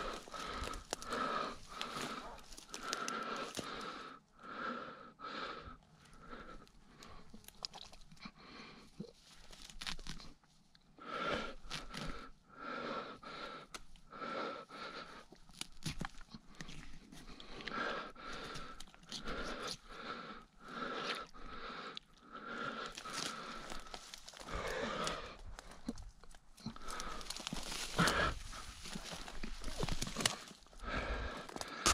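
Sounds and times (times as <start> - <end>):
rustling of shrub branches: 0.0 - 4.0, 22.6 - 31.6.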